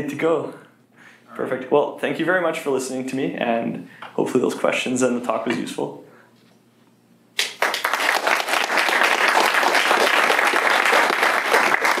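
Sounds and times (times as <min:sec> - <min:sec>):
audience applauding: 0:07.4 - 0:12.0.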